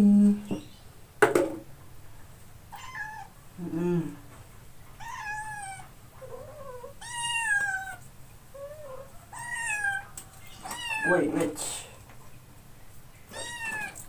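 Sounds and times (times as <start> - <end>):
kitten mewing: 13.3 - 14.0.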